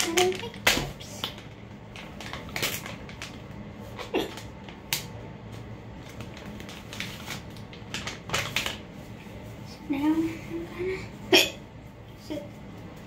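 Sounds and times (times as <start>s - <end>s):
makeup wipes pack rustling: 6.0s - 9.2s.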